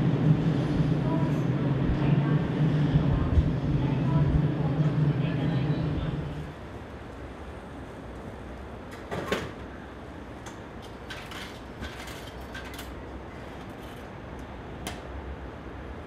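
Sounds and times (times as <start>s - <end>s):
steady low hum: 0.0s - 8.5s.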